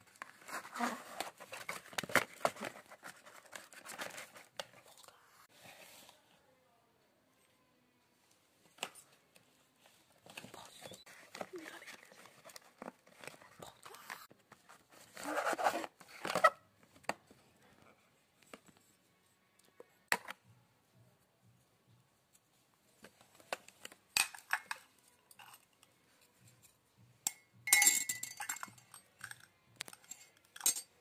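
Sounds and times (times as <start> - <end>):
ceramic clinks: 27.3 - 31.0.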